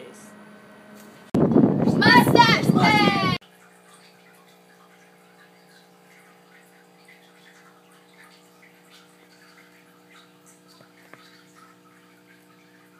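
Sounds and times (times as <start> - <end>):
low hum: 0.0 - 3.4.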